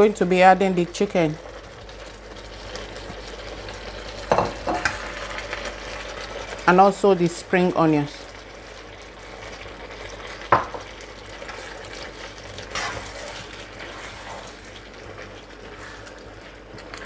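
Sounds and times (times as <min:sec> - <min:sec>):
stir fry sizzling in a pan: 0:00.0 - 0:17.0
spatula scraping a pan: 0:12.6 - 0:14.7, 0:15.6 - 0:16.2.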